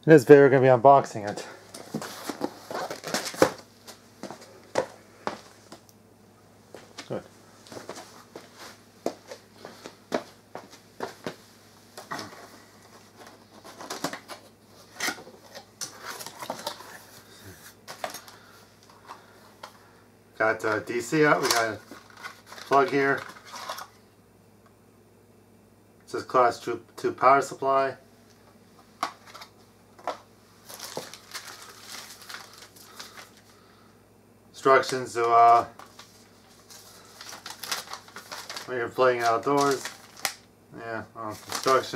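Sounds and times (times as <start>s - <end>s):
plastic packaging crinkling: 1.7s - 4.9s, 21.3s - 23.9s, 29.2s - 33.5s, 34.8s - 40.5s, 41.3s - 41.9s.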